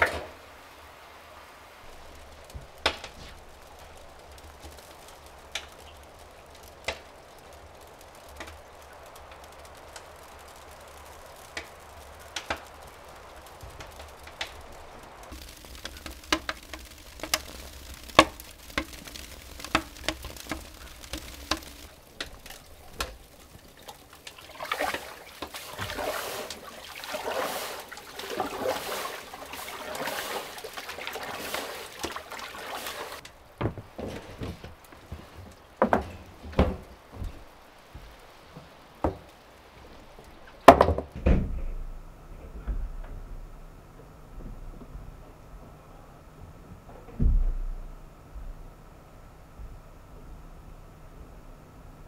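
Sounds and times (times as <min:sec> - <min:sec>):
hot tub water sloshing: 0:00.0 - 0:41.2
raindrops ticking on metal plate: 0:00.0 - 0:41.2.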